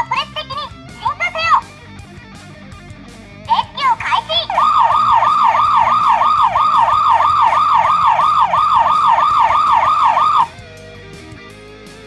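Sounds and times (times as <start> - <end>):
faint background music: 0.0 - 12.0
toy electronic siren yelp: 3.5 - 10.6.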